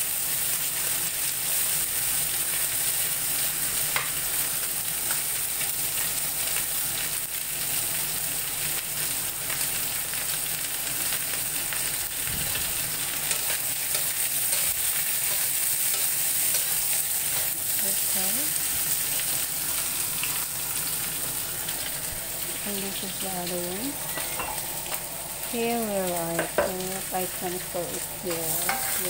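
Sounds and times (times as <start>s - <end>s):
meat sizzling in hot oil: 0.0s - 29.0s
spatula scraping metal wok: 28.3s - 29.0s.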